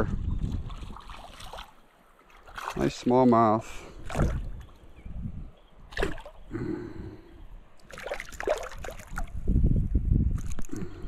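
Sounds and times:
short water splashes: 0.0 - 4.8, 5.9 - 6.5, 7.8 - 9.4
river water sloshing: 0.4 - 5.0, 5.8 - 6.5, 7.6 - 9.4.

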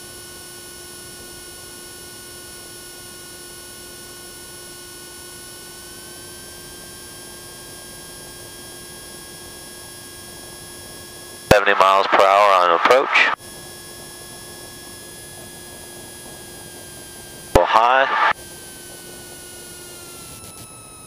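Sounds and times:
electrical hum and whine: 6.6 - 21.0.

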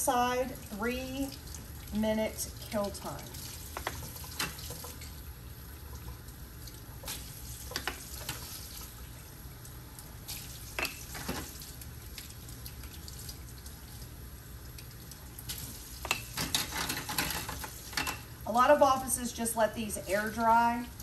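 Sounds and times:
tap water running into a sink: 0.1 - 9.2.

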